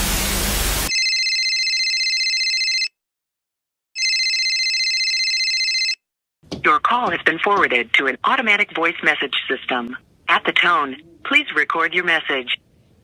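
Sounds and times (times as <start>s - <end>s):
loud hiss: 0.0s - 0.9s
electronic telephone ring: 0.9s - 3.0s, 4.0s - 6.0s.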